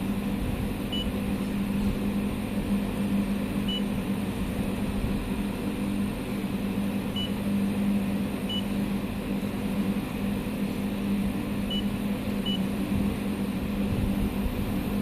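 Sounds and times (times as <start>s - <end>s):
inverter humming: 0.0s - 15.0s
control panel beeps: 3.7s - 3.9s, 7.2s - 7.4s, 8.5s - 8.7s, 11.7s - 12.7s.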